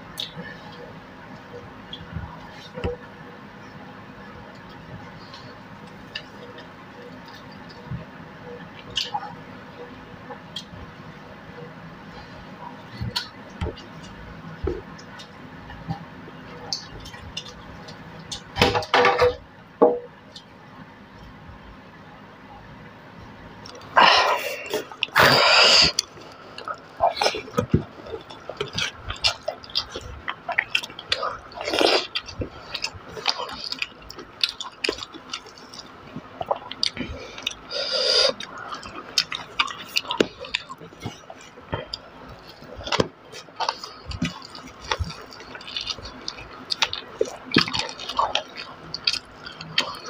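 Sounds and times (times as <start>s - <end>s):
wet chewing: 23.6s - 50.0s.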